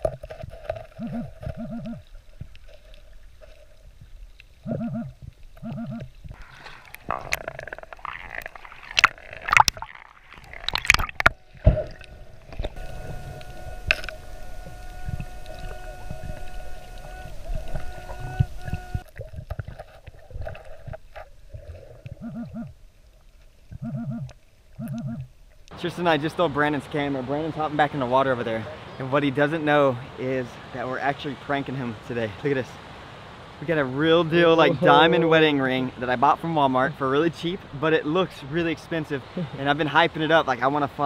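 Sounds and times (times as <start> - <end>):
underwater rushing noise: 0.0 - 23.7, 25.5 - 41.0
steady high tone: 12.0 - 19.0
short paired buzzes: 12.0 - 19.1.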